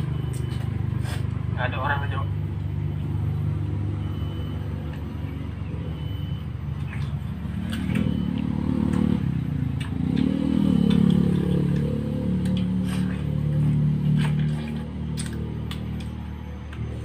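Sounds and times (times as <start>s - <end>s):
low engine rumble: 0.0s - 17.0s
wet bites into watermelon: 9.7s - 16.2s.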